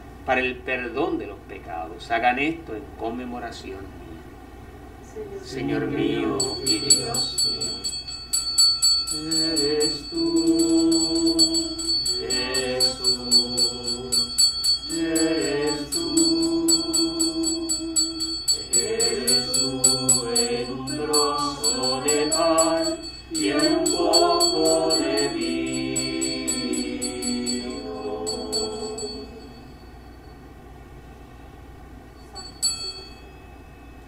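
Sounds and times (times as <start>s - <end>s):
group singing with instruments: 5.6s - 7.3s, 9.1s - 29.8s
fast high ticking beat: 6.4s - 29.4s
short ding: 32.2s - 34.0s.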